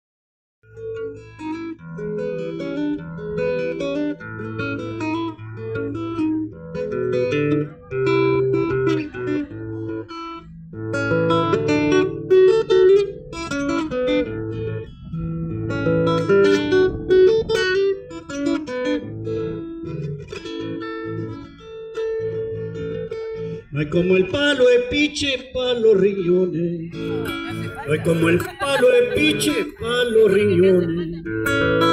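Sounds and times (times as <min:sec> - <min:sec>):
acoustic guitar strumming: 0:00.7 - 0:31.9.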